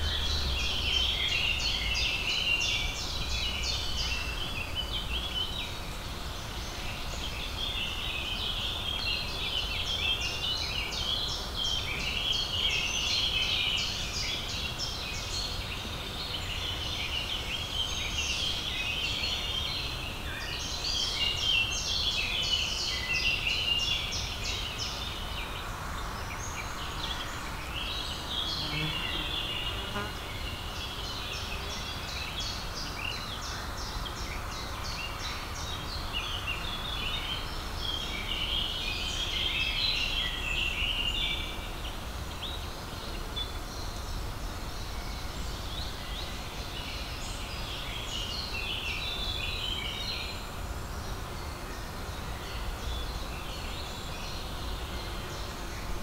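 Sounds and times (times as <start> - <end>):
low background rumble: 0.0 - 2.2
small birds singing: 0.0 - 56.0.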